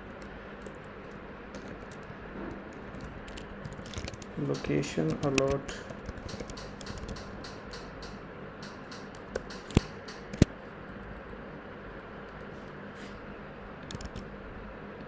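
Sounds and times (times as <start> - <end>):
keyboard keys clicking: 2.8 - 10.5.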